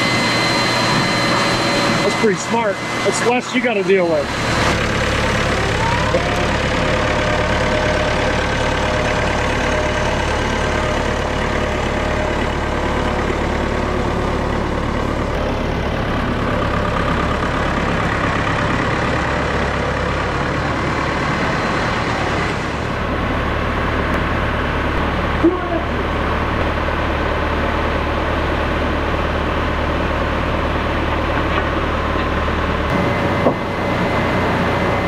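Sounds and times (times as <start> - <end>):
blowers rushing: 0.0 - 15.5
harvester engine hum: 0.0 - 35.0.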